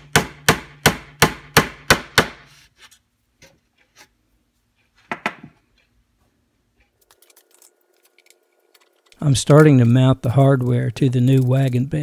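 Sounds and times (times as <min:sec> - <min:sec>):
hammer knocking on wooden bench: 0:05.1 - 0:05.6.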